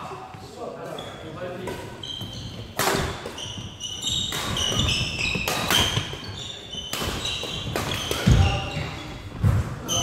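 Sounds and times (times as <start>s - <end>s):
shoes squeaking on gym floor: 0.8s - 10.0s
racket striking shuttlecock: 2.8s - 3.4s, 4.2s - 6.2s.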